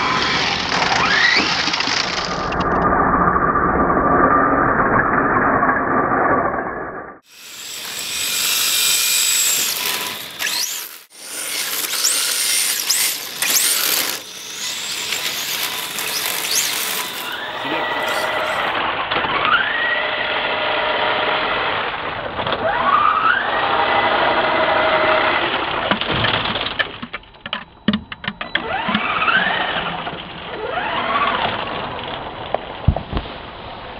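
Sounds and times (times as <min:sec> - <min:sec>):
electric motor whines: 0:07.2 - 0:18.8.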